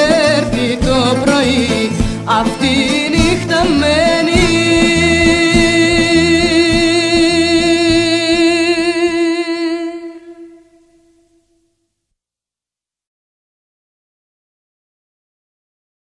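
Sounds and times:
pop song with vocal and drums: 0.0 - 10.0.

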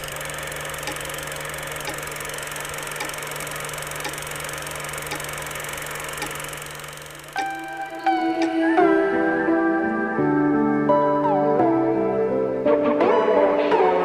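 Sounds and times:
projector clicks: 0.0 - 8.8
film projector whirring: 0.0 - 8.9.

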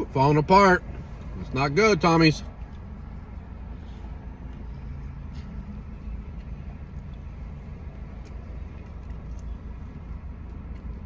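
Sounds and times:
low rumble inside car: 0.0 - 11.0
man chewing: 2.6 - 11.0.

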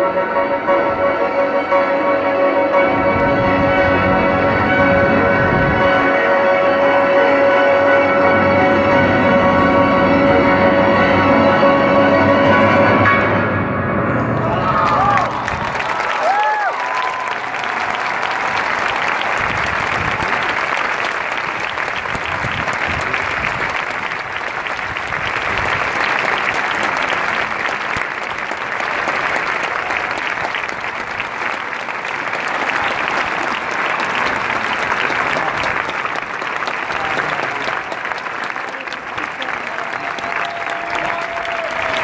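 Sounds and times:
crowd applauding: 14.2 - 42.0.

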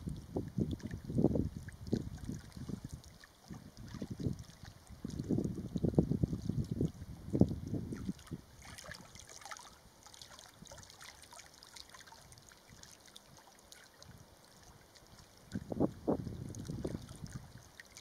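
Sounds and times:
wind buffeting microphone: 0.0 - 9.0, 15.5 - 17.6.

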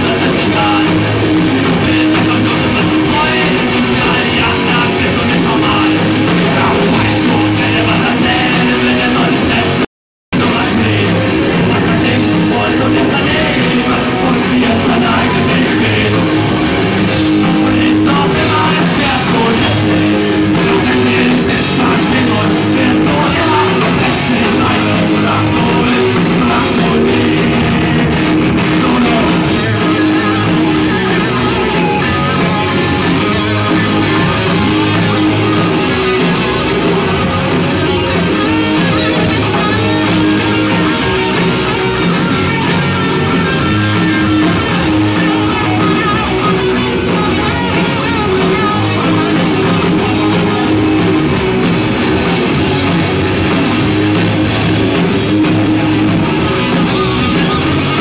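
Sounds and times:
lead singer singing: 0.0 - 52.4
drum kit: 0.0 - 58.0
electric guitars: 0.0 - 58.0.

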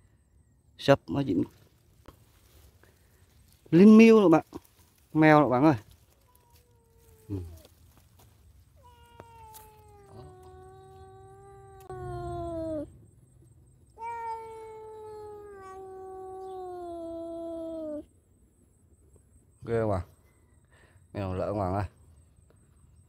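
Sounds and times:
cat meowing: 6.2 - 7.7, 8.8 - 12.9, 13.9 - 18.0.

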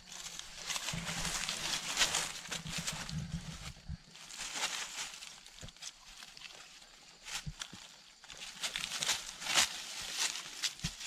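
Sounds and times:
branches and dry leaves rustling: 0.0 - 11.0
low rumble: 0.7 - 4.3.

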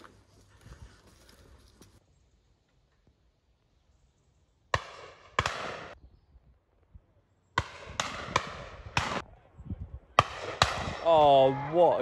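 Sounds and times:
shotgun shots with echo: 4.7 - 6.0, 7.6 - 9.2, 10.2 - 11.1.

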